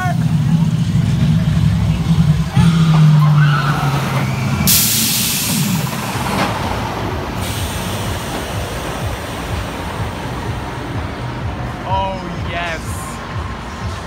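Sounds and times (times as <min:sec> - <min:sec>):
rushing rumble: 0:00.0 - 0:14.0
loud hydraulic launch hiss: 0:04.7 - 0:06.0, 0:07.4 - 0:09.6.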